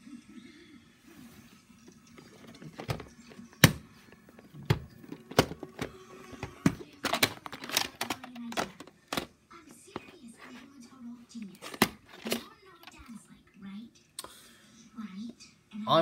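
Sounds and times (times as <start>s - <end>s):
plastic case clicking and knocking: 2.2s - 9.3s, 11.5s - 13.0s.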